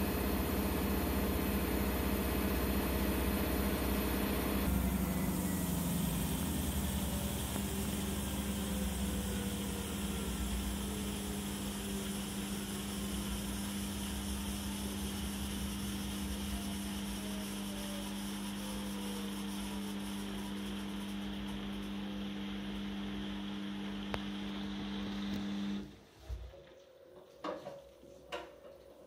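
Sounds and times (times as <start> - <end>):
washing machine motor humming: 0.0 - 26.0.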